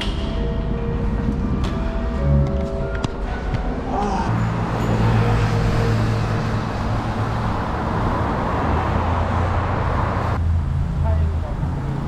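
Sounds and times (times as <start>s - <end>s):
passing vehicles rushing: 0.0s - 12.0s.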